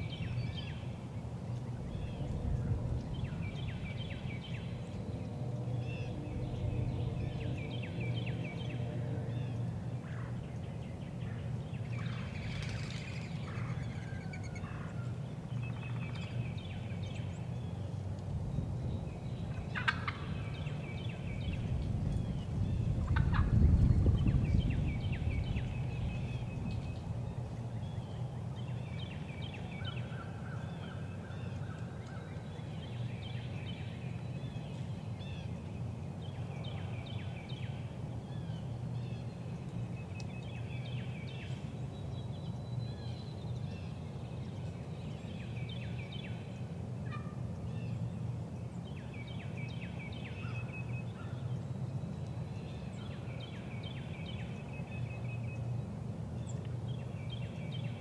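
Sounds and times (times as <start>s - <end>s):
low rumble: 1.7s - 9.2s
turkeys gobbling: 19.8s - 20.3s.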